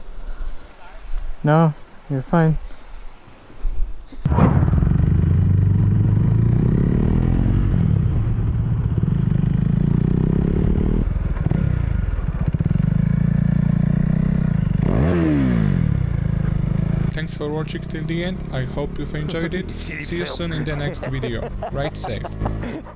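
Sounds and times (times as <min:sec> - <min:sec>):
motorcycle engine revving: 0:04.5 - 0:22.6.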